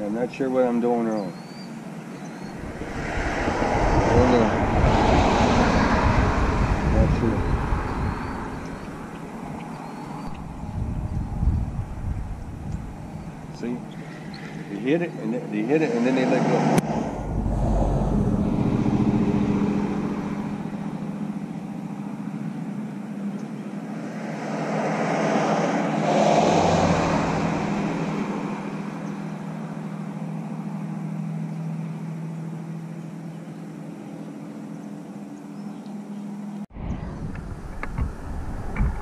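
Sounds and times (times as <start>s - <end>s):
engine humming steadily: 1.7s - 24.2s, 25.7s - 39.0s.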